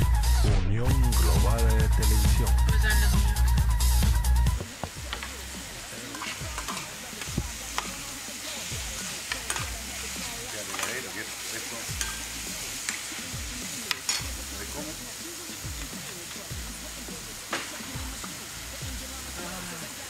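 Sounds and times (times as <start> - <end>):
music jingle: 0.3 - 4.6
mushrooms sizzling in a pan: 1.1 - 20.0
metal spoon scraping a pan: 5.1 - 14.4.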